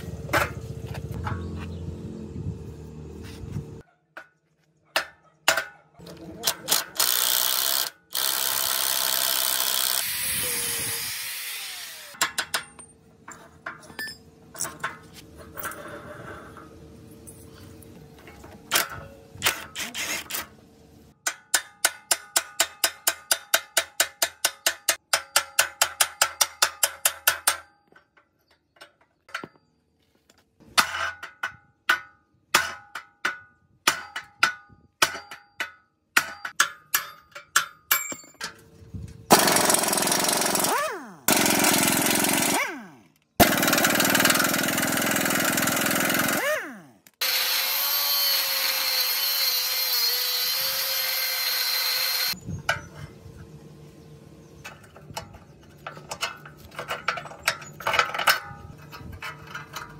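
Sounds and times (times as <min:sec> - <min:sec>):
power tool running: 0:06.7 - 0:12.2, 0:39.3 - 0:52.4.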